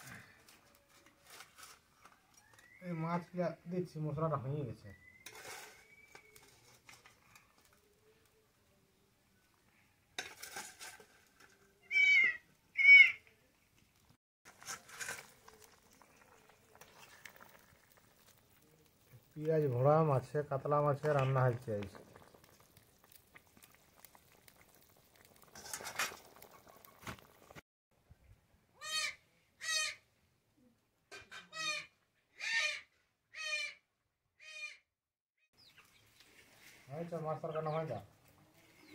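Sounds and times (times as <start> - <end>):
curry bubbling in a pot: 14.5 - 27.6.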